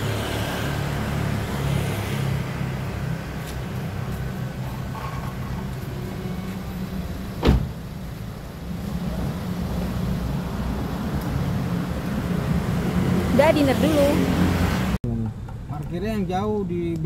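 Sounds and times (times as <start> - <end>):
car door shutting: 7.2 - 8.0.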